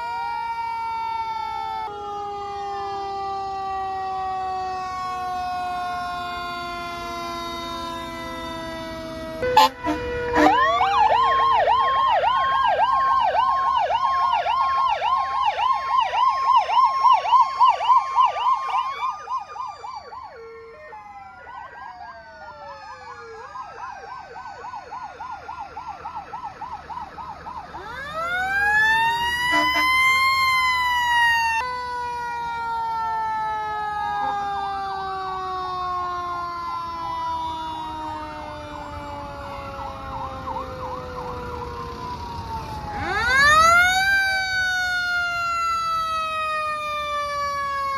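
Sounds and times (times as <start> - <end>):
fast warbling siren yelp: 0.0 - 47.9
siren rising and falling: 0.0 - 47.9.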